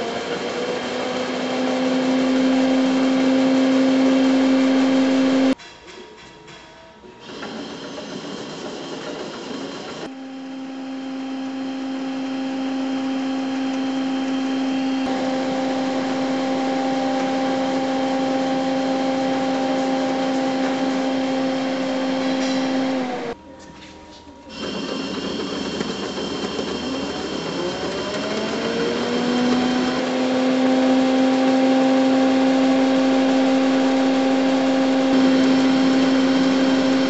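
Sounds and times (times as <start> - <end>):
printer motor hum: 9.1 - 23.4, 24.4 - 37.0.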